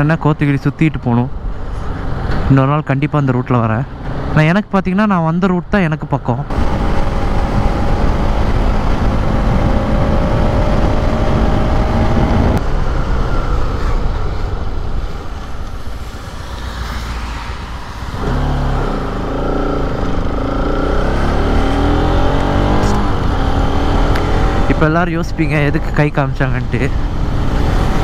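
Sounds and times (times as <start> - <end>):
motorcycle engine accelerating: 6.5 - 14.2, 18.1 - 25.7.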